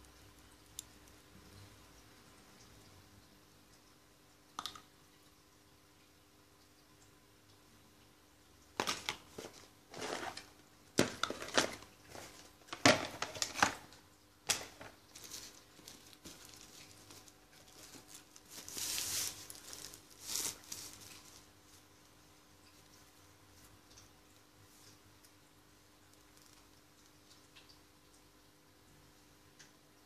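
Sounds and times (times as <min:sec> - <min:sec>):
plastic packaging crinkling: 0:08.8 - 0:13.9, 0:14.5 - 0:21.5.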